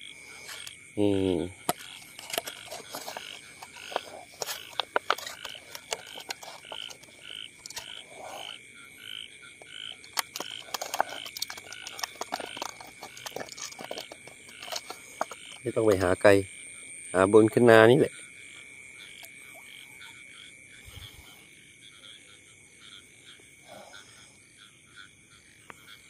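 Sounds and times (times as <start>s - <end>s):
frogs calling: 0.0s - 26.0s
high-pitched insect drone: 0.0s - 26.0s
plastic bottle crackling: 1.6s - 8.5s, 9.6s - 16.1s.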